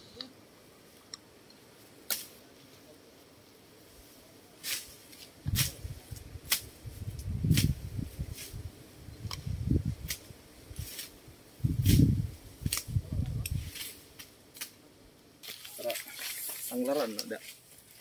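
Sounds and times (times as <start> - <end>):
stems and twigs snapping: 2.0 - 2.3, 12.6 - 14.8.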